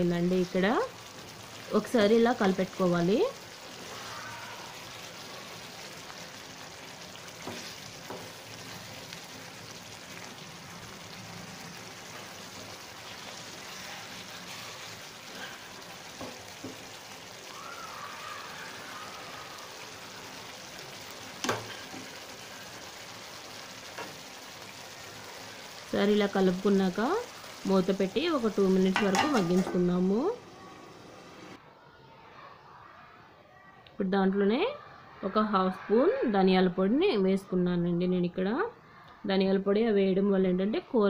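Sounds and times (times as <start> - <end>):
curry sizzling in a pan: 0.0 - 31.6
wooden spatula stirring: 4.7 - 9.3.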